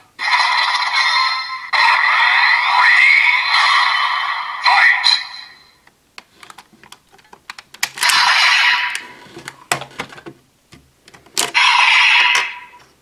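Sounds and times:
plastic toy clicks and snaps: 0:06.4 - 0:08.2.

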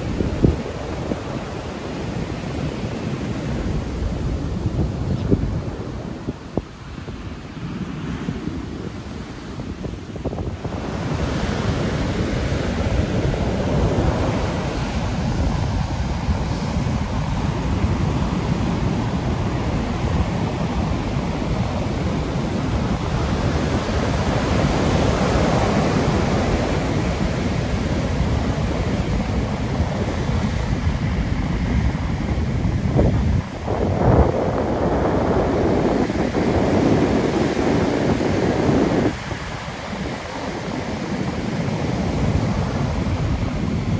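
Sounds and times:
heavy surf breaking: 0:00.0 - 0:43.9
wind buffeting microphone: 0:00.0 - 0:43.9.

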